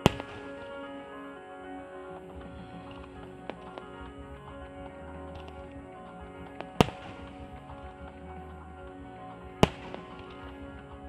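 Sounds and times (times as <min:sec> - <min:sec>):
firework bursts: 0:00.0 - 0:01.0, 0:02.2 - 0:08.5, 0:09.5 - 0:10.8
music playing: 0:00.0 - 0:11.0.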